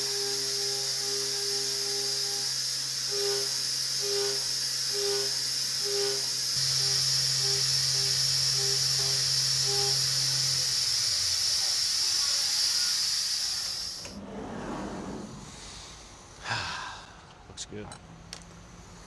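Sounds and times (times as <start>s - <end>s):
router cutting wood hiss: 0.0s - 14.2s.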